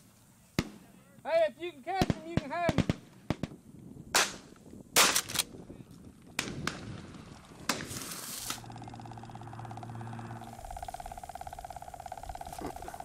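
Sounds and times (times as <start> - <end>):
shotgun shots: 4.2 - 5.5
engine hum: 6.8 - 13.0.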